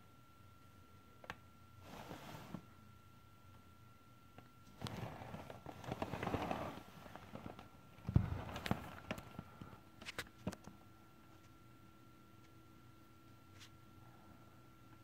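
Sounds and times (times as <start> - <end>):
dull thump: 8.0 - 8.8.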